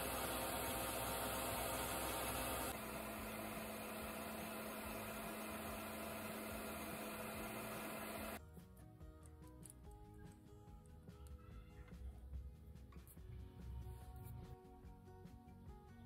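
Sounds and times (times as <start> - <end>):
metal lathe running: 0.0 - 8.4.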